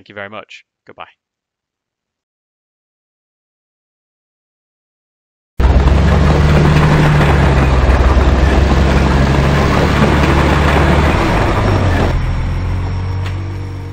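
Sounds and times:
heavy vehicle engine idling: 5.6 - 13.9.

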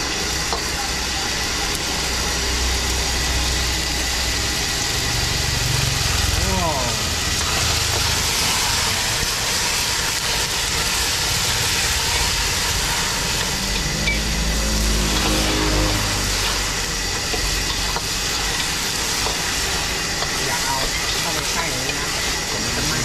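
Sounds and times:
gas burner hissing: 0.0 - 23.0
seafood sizzling in a wok: 0.0 - 23.0
low hum: 11.7 - 19.9.

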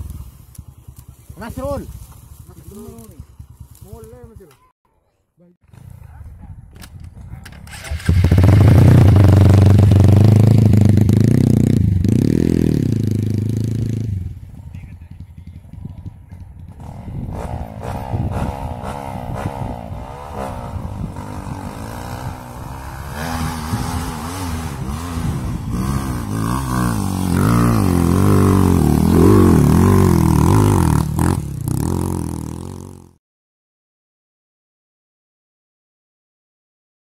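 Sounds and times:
dirt bike engine revving: 7.7 - 14.4, 16.4 - 33.2.

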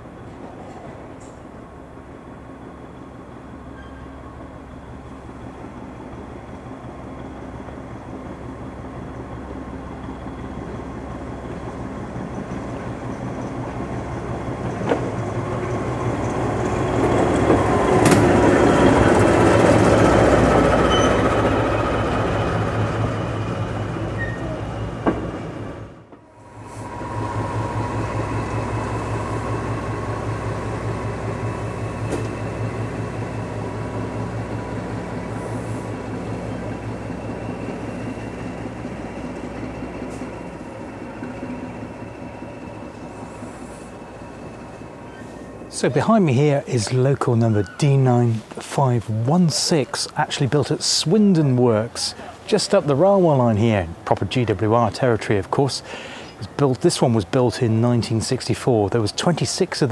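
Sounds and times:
diesel locomotive passing: 0.0 - 59.9
locomotive engine idling: 0.0 - 59.9
sharp train clicks: 8.6 - 26.3, 27.0 - 45.2.

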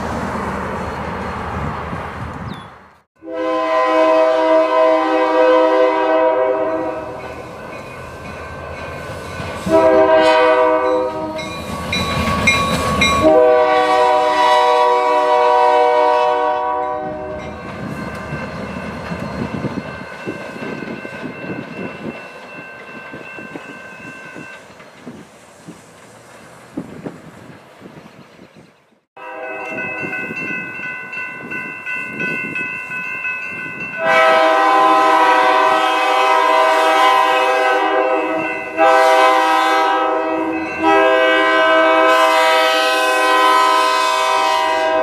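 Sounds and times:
train engine and rolling wheels: 0.0 - 45.0
locomotive air horn blasts: 3.2 - 7.2, 9.6 - 11.5, 13.2 - 17.5, 29.2 - 29.9, 34.0 - 45.0
train wheels clickety-clack: 11.3 - 13.4.

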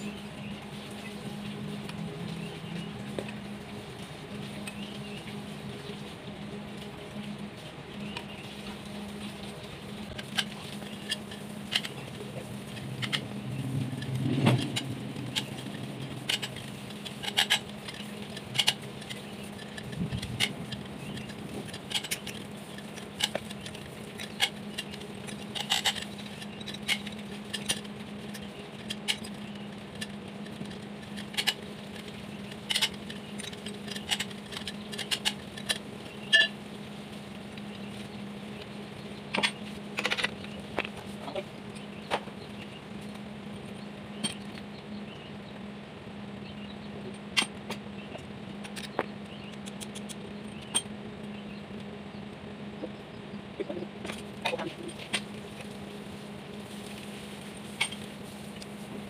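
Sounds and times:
steady low hum: 0.0 - 59.0
wrenches clanking on metal: 14.0 - 36.6.

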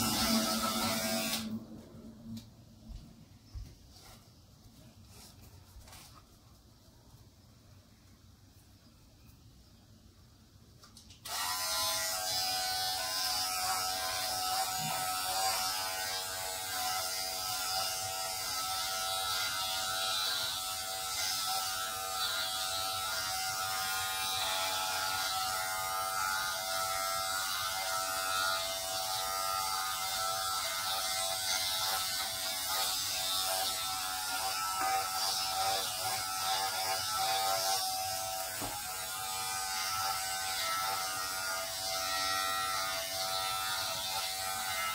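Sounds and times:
electric hair shaver buzzing: 0.0 - 1.6, 11.2 - 44.9.

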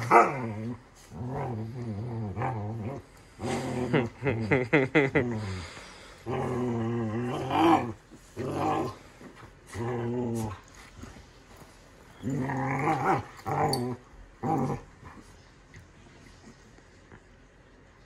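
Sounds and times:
dogs growling: 0.0 - 11.2, 12.1 - 15.2.

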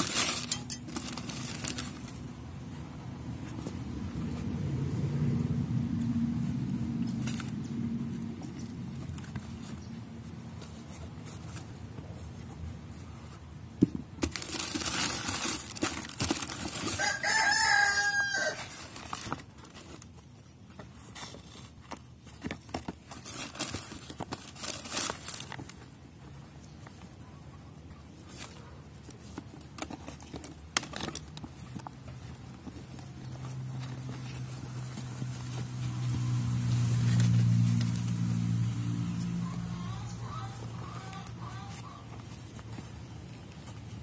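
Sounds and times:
rustling tissue paper: 0.0 - 2.8, 14.2 - 27.0.

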